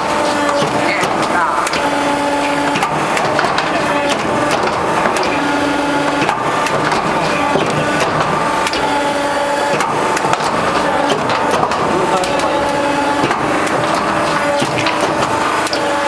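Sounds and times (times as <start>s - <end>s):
machine hum: 0.0s - 16.0s
metal sheet crackling and rattling: 9.7s - 16.0s.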